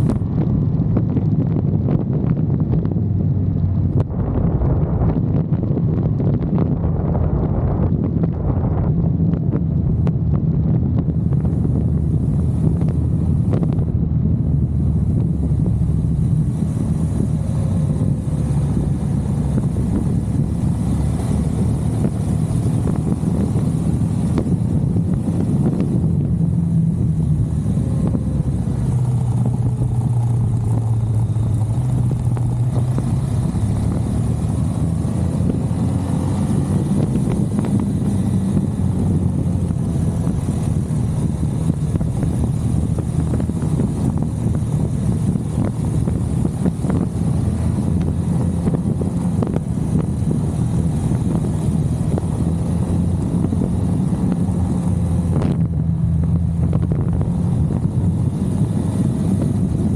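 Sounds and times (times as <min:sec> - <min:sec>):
motorcycle engine running: 0:00.0 - 0:59.9
wind rumble on microphone: 0:00.0 - 0:59.9.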